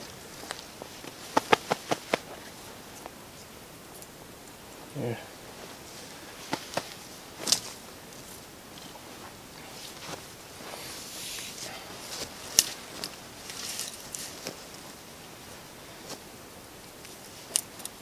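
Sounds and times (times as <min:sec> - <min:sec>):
cord rustling: 0:00.0 - 0:03.2, 0:05.5 - 0:15.0.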